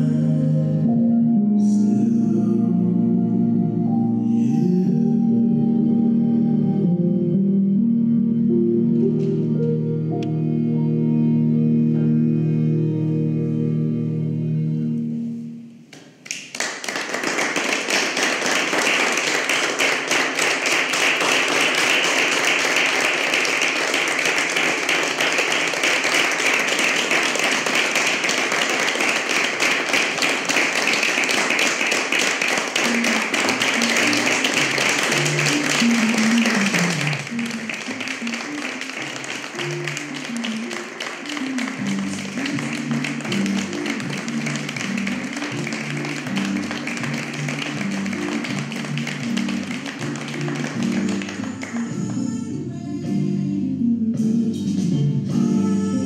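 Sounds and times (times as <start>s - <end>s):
melodic music: 0.0s - 15.9s, 19.1s - 56.0s
audience clapping: 15.9s - 52.2s
sustained music: 17.0s - 56.0s.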